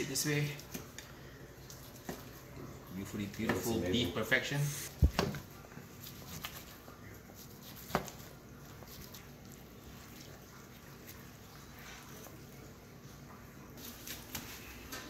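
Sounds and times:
hands pulling meat apart: 5.1 - 11.3
knife slicing steak: 6.0 - 9.2.

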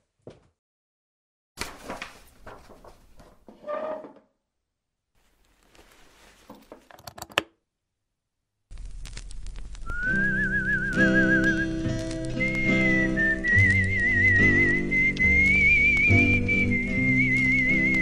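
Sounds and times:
papery rustling and sliding: 1.6 - 3.6, 5.2 - 6.9, 11.5 - 14.0
record player hum and hiss: 5.2 - 7.4, 8.7 - 14.2.

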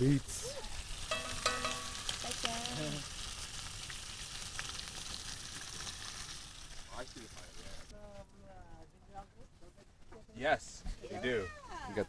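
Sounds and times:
bacon sizzling in a skillet: 0.0 - 8.0
eggs frying: 0.0 - 8.0
wooden spoon stirring: 1.1 - 2.6.

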